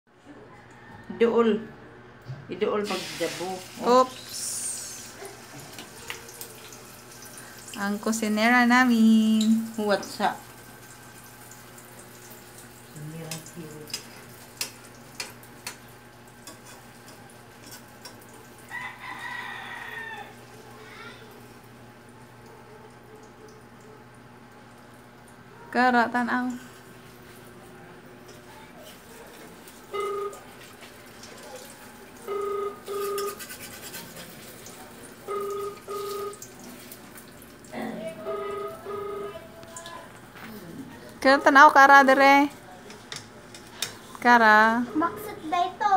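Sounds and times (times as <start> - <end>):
egg sizzling in a pan: 2.8 - 22.5, 28.2 - 37.7
double-beep electronic ring tone: 30.0 - 30.4, 32.3 - 33.4, 35.3 - 36.4, 38.3 - 39.4
metal spatula scraping pan: 32.9 - 34.3.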